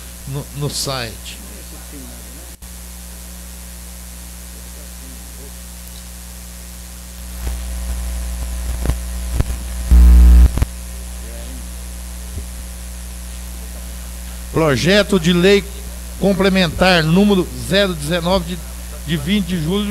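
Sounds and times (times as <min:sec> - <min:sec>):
electrical mains hum: 0:00.0 - 0:19.9
loud buzz: 0:09.9 - 0:10.8.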